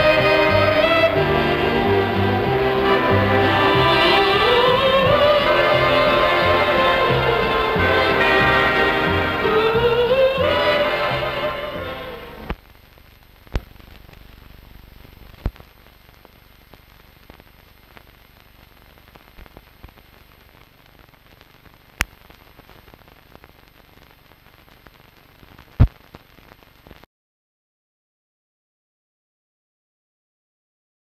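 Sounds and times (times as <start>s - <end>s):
faint hiss and crackle: 0.0s - 27.1s
sharp pops: 21.4s - 27.0s.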